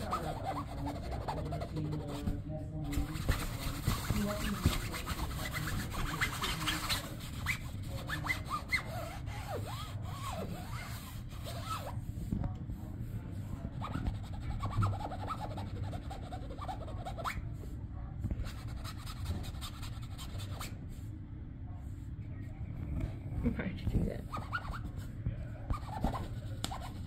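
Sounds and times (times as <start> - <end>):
fingers scratching on fabric: 0.0 - 12.0, 13.5 - 17.5, 18.3 - 20.8, 24.2 - 27.0.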